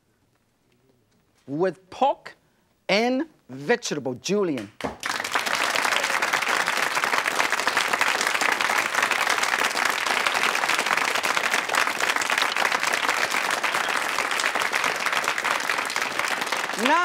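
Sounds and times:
audience applauding: 4.8 - 17.0.

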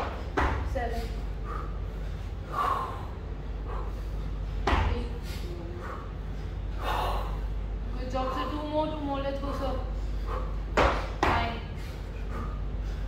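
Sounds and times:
steady low hum: 0.0 - 13.0
short sharp breaths: 0.9 - 4.5, 5.1 - 7.6.

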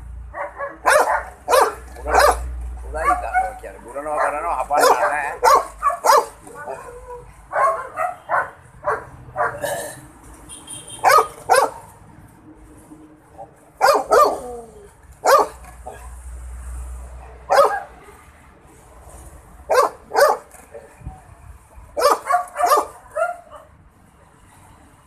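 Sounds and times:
dog barking: 0.3 - 9.6, 11.0 - 11.9, 13.8 - 14.5, 15.2 - 16.1, 17.5 - 17.9, 19.7 - 20.5, 22.0 - 23.7.

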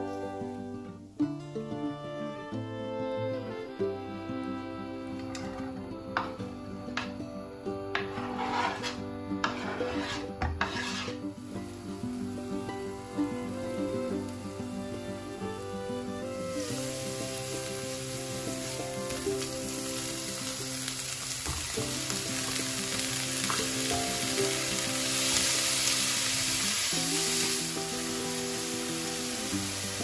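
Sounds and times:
vegetables sizzling in a frying pan: 7.9 - 8.9, 9.5 - 30.0
spatula stirring: 7.9 - 11.2.

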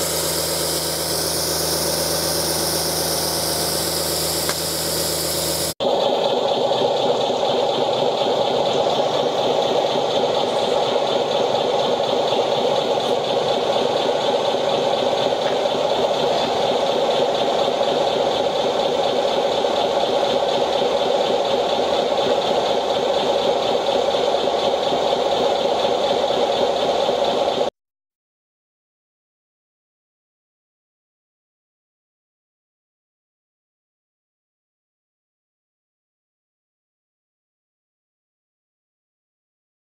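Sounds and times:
pump mechanical drone: 0.0 - 27.7.

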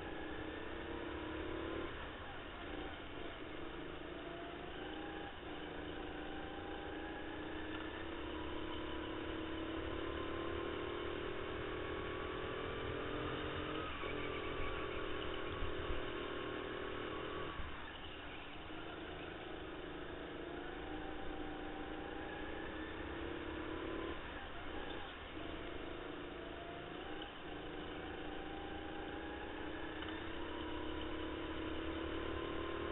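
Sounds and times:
go-kart engine: 0.0 - 32.9.

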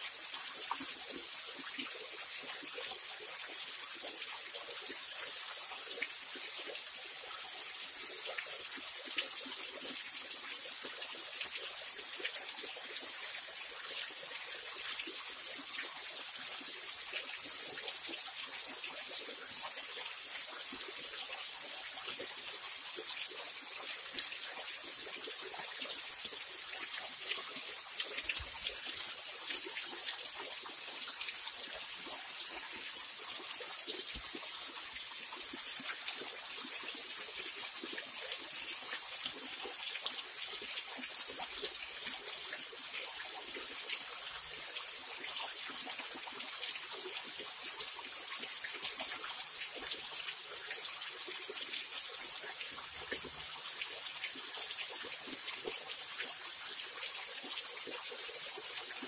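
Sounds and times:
small waterfall splashing: 0.0 - 59.0.

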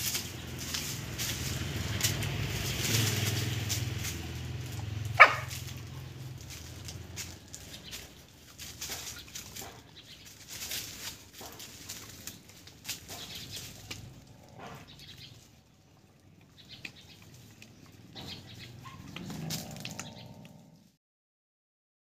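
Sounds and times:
rustling and crackling clicks: 0.0 - 15.6, 16.2 - 20.6
animal call: 5.0 - 6.2, 13.1 - 20.9.

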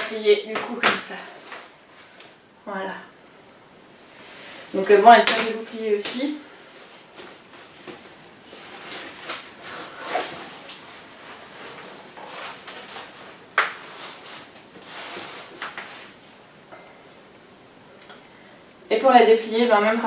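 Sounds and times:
fabric rustling: 4.0 - 16.4.

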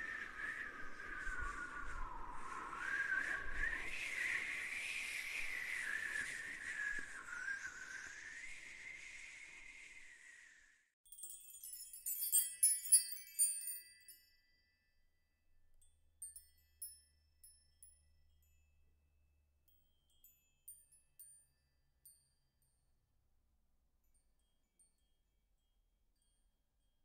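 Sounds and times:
high tinkling chimes: 11.0 - 23.0, 24.0 - 27.0.

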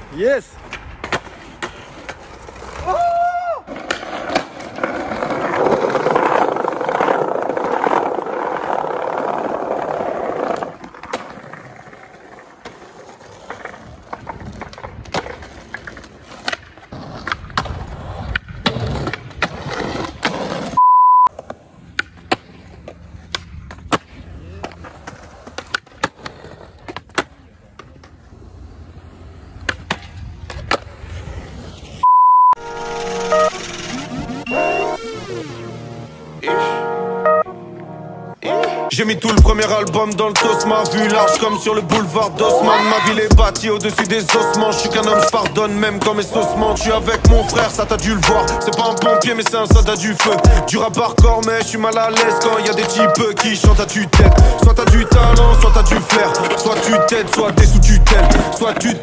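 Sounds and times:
skateboard wheels rolling on stone: 0.0 - 32.0, 32.6 - 35.6, 39.0 - 59.0
skateboard clacks and landings: 3.7 - 28.3, 29.5 - 31.2
short high beep: 20.8 - 21.3, 32.0 - 35.1.

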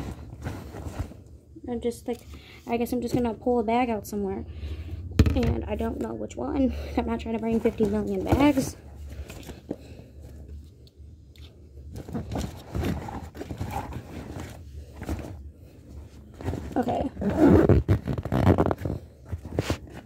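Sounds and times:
fabric bag rustling and bumping: 7.3 - 8.8, 16.2 - 20.0.

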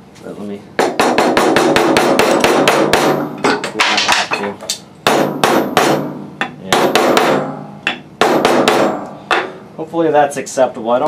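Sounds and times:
hammer striking wooden block: 0.8 - 4.4, 5.0 - 9.6.

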